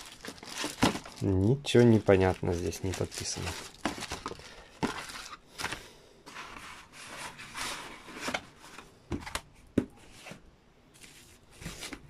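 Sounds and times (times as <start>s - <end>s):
cardboard boxes shuffled: 0.0s - 1.2s, 1.9s - 9.3s, 11.0s - 12.0s
plastic wrap rustling: 0.0s - 8.6s.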